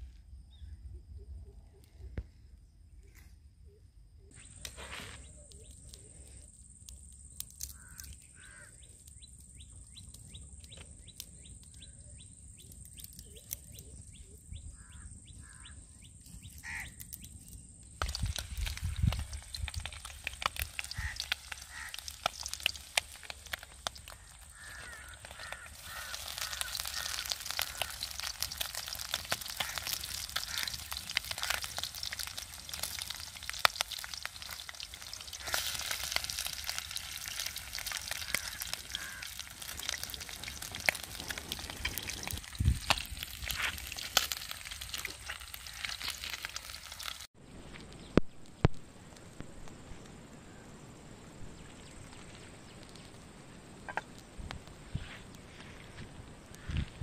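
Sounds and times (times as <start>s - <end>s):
wood fire crackling: 4.3s - 14.1s, 15.4s - 51.2s, 52.0s - 57.0s
bird calls: 7.6s - 17.5s, 18.8s - 32.4s, 34.4s - 43.0s
oil sizzling: 18.0s - 47.3s.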